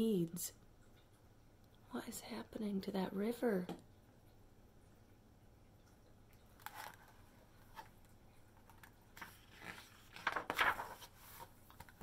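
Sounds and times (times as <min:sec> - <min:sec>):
book pages turning: 0:06.6 - 0:08.0, 0:08.6 - 0:12.0.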